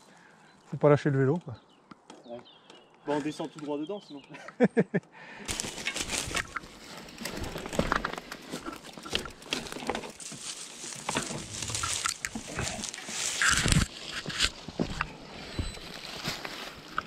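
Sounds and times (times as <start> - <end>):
mountain bike crunching and rattling: 5.5 - 17.0.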